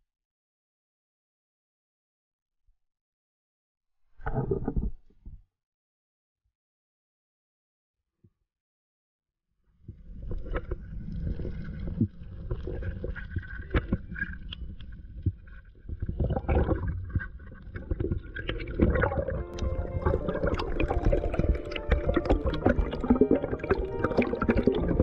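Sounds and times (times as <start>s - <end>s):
muffled underwater water rumble: 9.9s - 25.0s.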